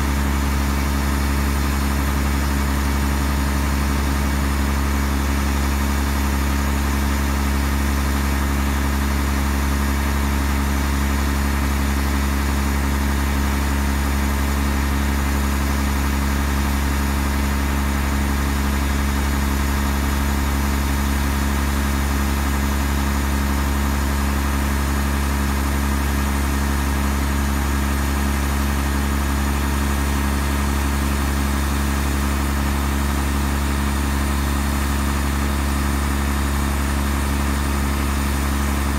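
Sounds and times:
diesel truck engine idling: 0.0 - 38.9.

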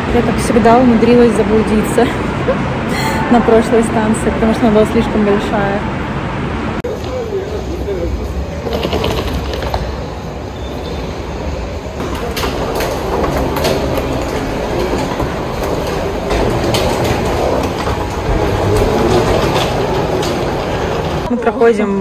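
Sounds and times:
suitcase wheels rumbling on tiles: 8.6 - 10.5, 12.0 - 21.4.

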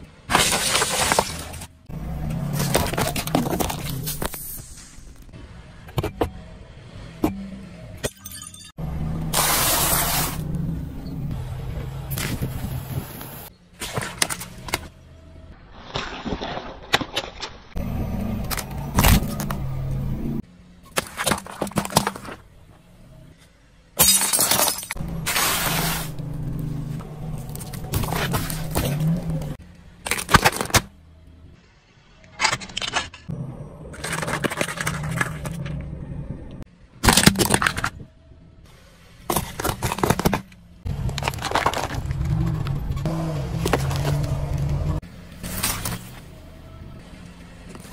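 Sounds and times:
objects cracking and crunching: 0.3 - 1.7, 27.0 - 30.9, 39.3 - 42.9
low rumble of car: 1.3 - 8.0, 8.8 - 15.7, 17.7 - 20.9, 21.8 - 24.0, 25.0 - 30.1, 33.3 - 37.0, 37.7 - 47.9.

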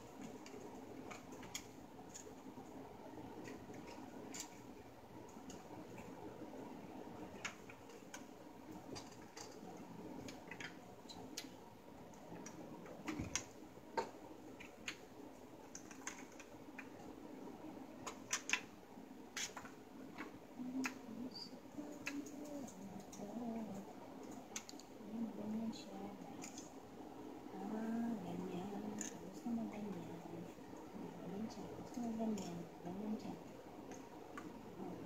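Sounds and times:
faint steady hum: 0.0 - 35.0
plastic parts clicking and tapping: 15.6 - 17.0, 18.0 - 18.7.

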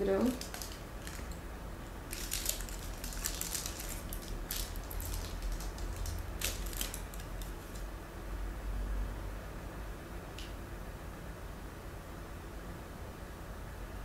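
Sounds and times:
paper wrapper crinkling: 0.2 - 7.9.

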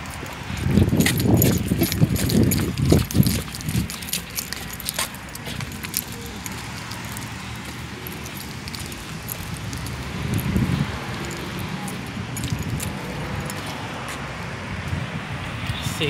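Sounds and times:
road traffic passing: 0.0 - 16.0
muffled microphone rumbles: 0.4 - 4.8, 9.0 - 11.2.

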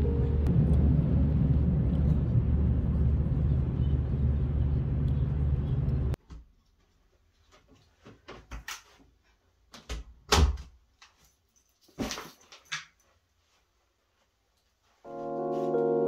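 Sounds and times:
soft piano music: 0.0 - 0.8, 15.1 - 16.0.

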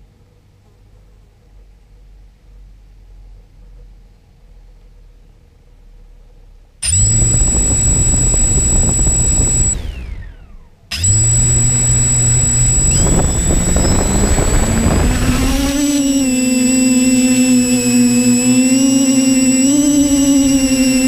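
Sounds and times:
drone propellers whining: 6.8 - 21.0.

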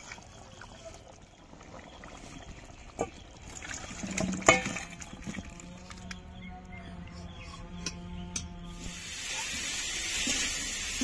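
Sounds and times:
gravy trickling and sloshing: 0.0 - 6.1.

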